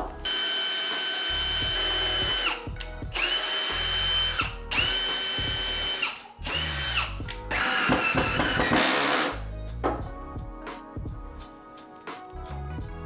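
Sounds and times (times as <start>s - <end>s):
cordless drill whining: 0.2s - 9.4s.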